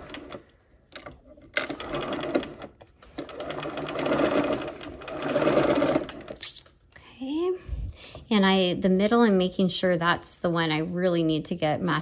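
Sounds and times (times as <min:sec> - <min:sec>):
sewing machine stitching: 0:00.0 - 0:06.4.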